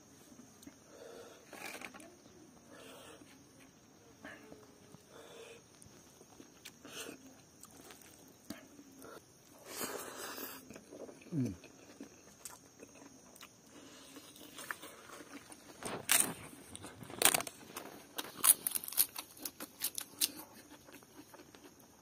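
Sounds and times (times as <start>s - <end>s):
quiet chewing: 0.2s - 22.0s
crunching crisp papad: 13.9s - 21.8s.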